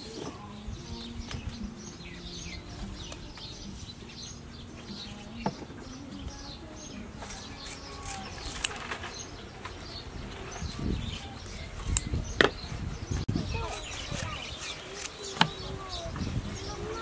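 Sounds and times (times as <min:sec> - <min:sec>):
small birds chirping: 0:00.0 - 0:17.0
scissors snipping leaves: 0:07.2 - 0:09.2, 0:13.6 - 0:15.6.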